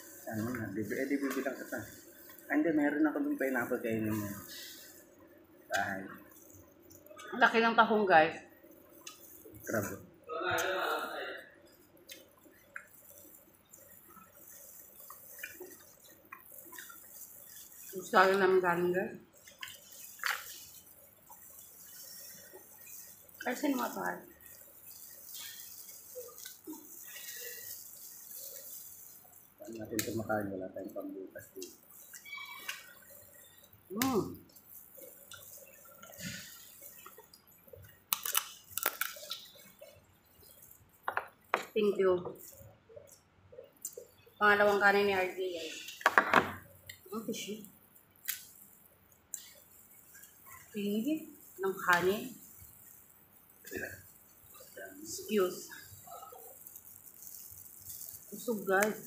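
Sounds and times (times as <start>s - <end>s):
wet clicks and plastic crinkles: 8.6s - 10.0s, 19.4s - 44.2s, 45.9s - 50.8s
shells cracking apart: 31.6s - 39.8s.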